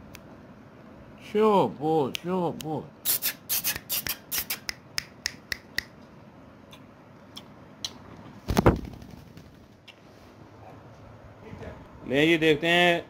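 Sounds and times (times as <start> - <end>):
parrot beak scraping and clicking: 3.1 - 5.9.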